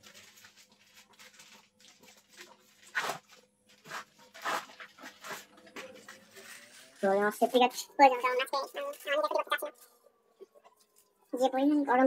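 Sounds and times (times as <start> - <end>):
paper wrapping crinkling: 0.0 - 7.2.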